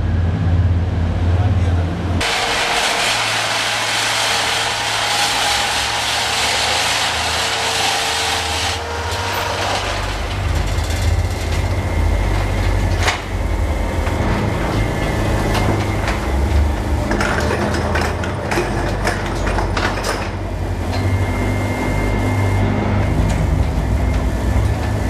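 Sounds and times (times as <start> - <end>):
machinery low rumble: 0.0 - 7.6, 8.2 - 25.0
mining machinery grinding hiss: 2.2 - 10.9.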